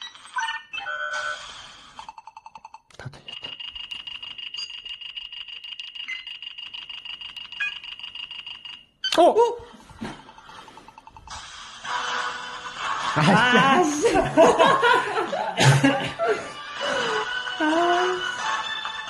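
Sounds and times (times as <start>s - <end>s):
fast electronic ticking: 2.0s - 9.0s
high electronic beeping tone: 3.3s - 8.8s
electronic sliding sound: 10.2s - 13.0s.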